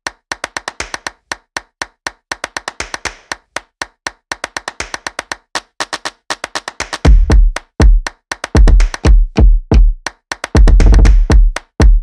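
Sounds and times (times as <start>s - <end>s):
sharp percussive clicks: 0.0s - 9.1s, 10.0s - 11.9s.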